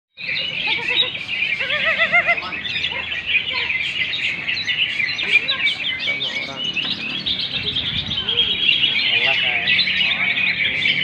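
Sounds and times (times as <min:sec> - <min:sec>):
chorus of birds chirping and trilling: 0:00.2 - 0:11.0.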